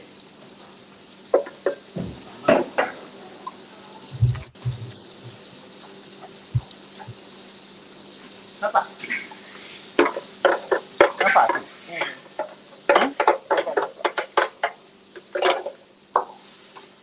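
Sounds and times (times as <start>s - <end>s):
low sizzle: 0.0s - 17.0s
kitchen range hum: 0.6s - 7.5s.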